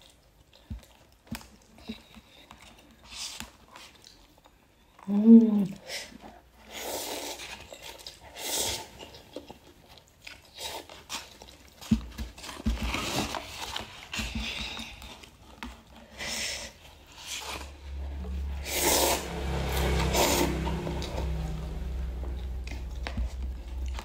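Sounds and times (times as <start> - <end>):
person slurping and chewing noodles: 6.0 - 11.9, 12.9 - 24.0.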